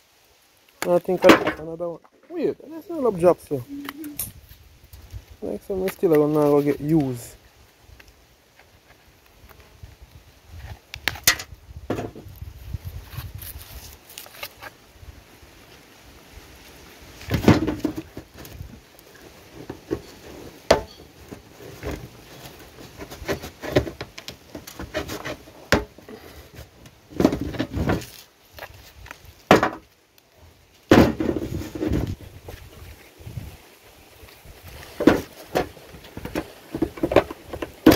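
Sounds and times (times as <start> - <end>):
knife scraping sugar cane: 13.1 - 14.7, 24.6 - 26.4.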